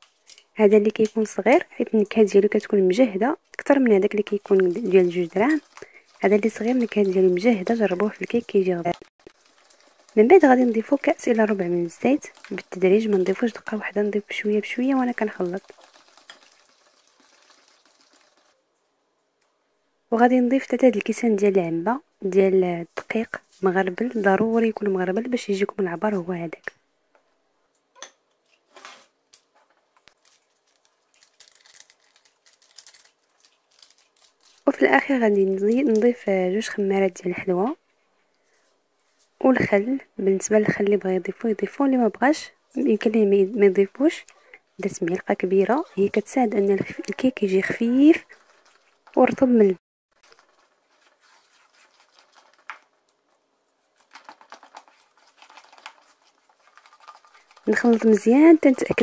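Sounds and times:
utensil stirring batter in metal bowl: 3.5 - 18.6, 42.8 - 59.0
paper sachet crinkling: 30.1 - 34.8, 50.2 - 53.2, 53.9 - 59.0.

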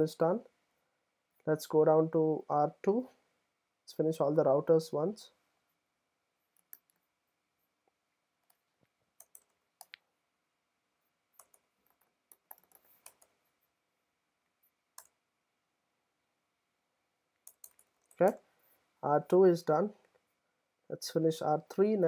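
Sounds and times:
computer keyboard and mouse clicks: 6.6 - 7.0, 9.2 - 10.0, 11.3 - 13.4, 17.4 - 18.4.

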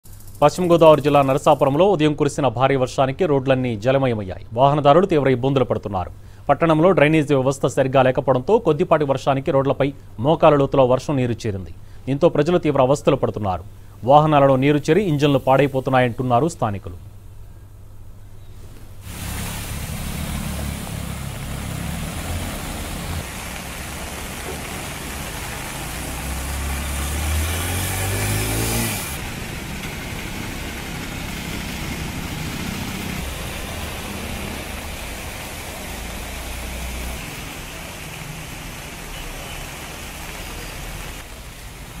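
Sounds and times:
hiss of water and spray: 0.0 - 1.8, 14.4 - 16.4, 18.6 - 42.0
small engines running: 19.0 - 41.4
engine revving: 19.1 - 41.2.

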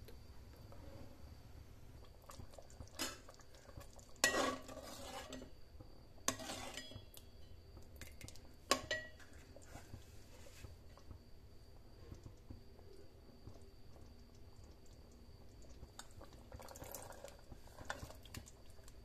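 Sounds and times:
spoon clinking and scraping in pot: 4.2 - 5.5, 6.3 - 7.2.

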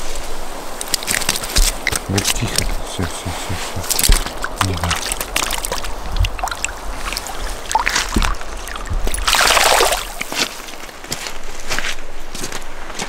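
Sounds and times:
river water splashing: 0.0 - 11.4
fish flapping in water: 3.9 - 10.4.

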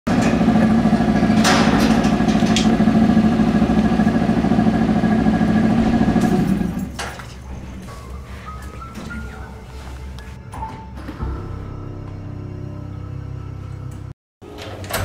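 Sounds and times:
engine idling loudly: 0.1 - 6.9.

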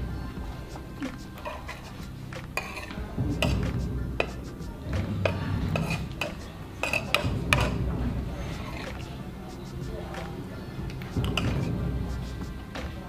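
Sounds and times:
cutlery clinking against bowls: 1.0 - 4.4, 5.2 - 7.8, 10.9 - 11.7.

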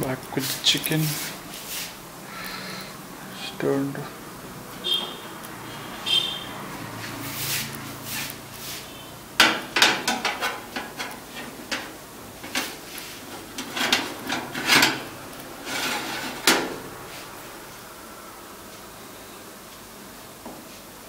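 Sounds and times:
cookware knocking and scraping: 9.4 - 15.1.

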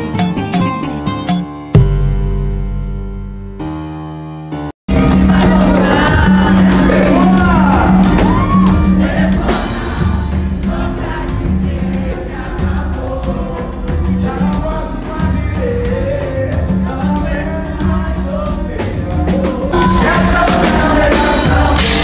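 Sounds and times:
loud music with singing: 4.9 - 22.0.

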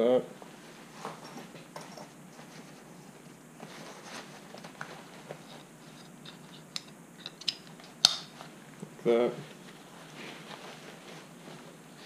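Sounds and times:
nylon straps rustling: 9.5 - 12.0.

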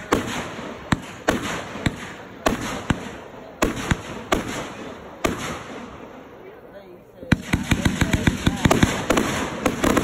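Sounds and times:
fireworks banging: 0.0 - 6.4, 7.2 - 10.0.

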